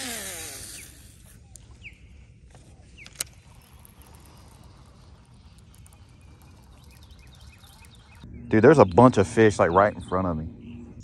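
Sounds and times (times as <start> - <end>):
bird chirps: 0.7 - 11.0.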